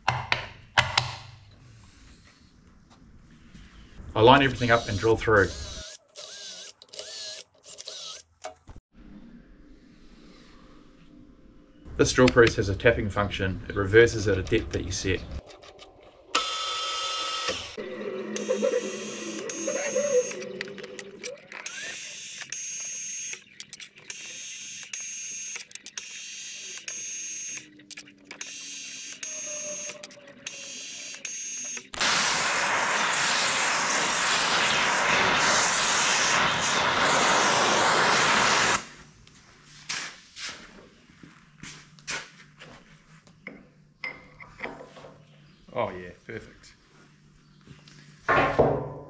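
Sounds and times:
drill press motor reversing: 16.3 - 23.4.

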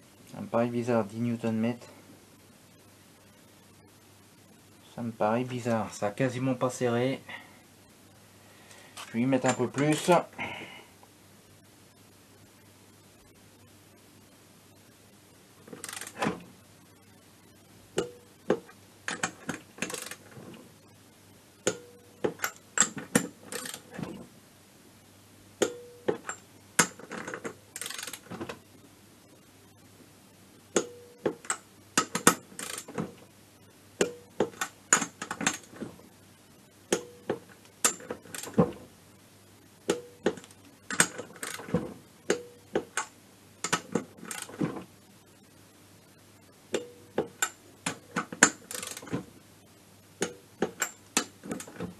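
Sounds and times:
ratchet wrench clicking: 15.8 - 16.2, 19.8 - 20.2, 23.5 - 23.8, 27.8 - 28.2, 31.5 - 32.9, 40.9 - 41.7, 48.7 - 49.1.

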